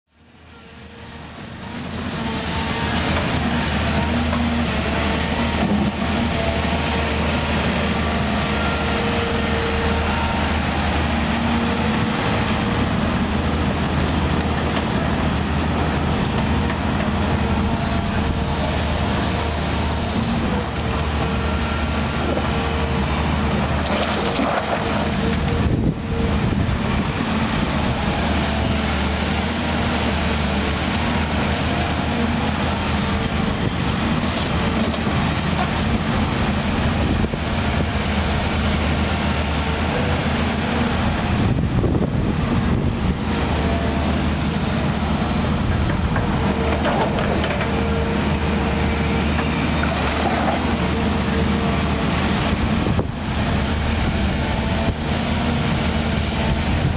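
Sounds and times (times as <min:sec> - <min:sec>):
excavator diesel engine: 0:00.1 - 0:56.9
bucket moving wet mud: 0:21.4 - 0:25.6, 0:44.1 - 0:52.8.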